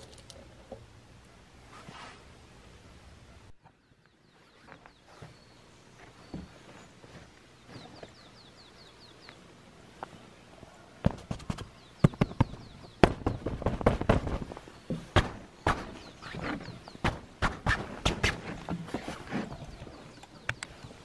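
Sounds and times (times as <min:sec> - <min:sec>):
small bird chirping: 0:03.4 - 0:10.5, 0:11.1 - 0:17.0.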